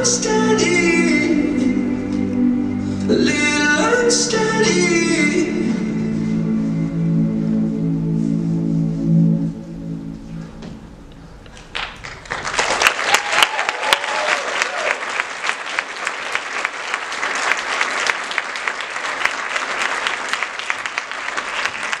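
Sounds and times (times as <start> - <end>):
audience applauding: 11.4 - 22.0
person cheering: 13.1 - 15.0.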